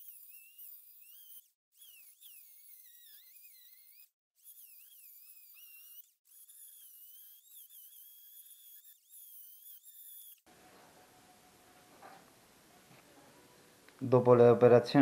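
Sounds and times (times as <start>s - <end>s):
die grinder whining: 0.0s - 10.5s.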